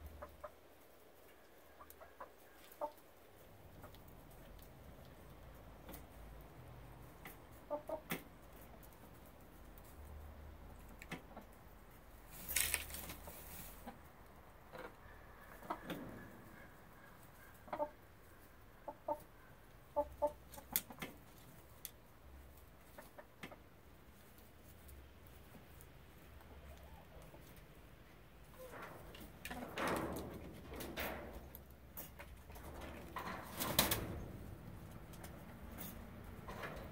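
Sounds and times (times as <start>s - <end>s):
hens clucking: 0.0s - 36.9s
noisy rustle: 11.9s - 13.9s, 28.4s - 36.9s.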